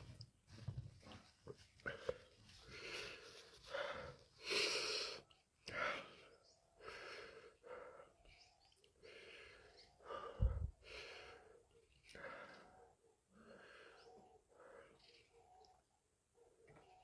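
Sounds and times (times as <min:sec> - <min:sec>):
man breathing hard: 0:01.9 - 0:08.3, 0:09.0 - 0:15.2.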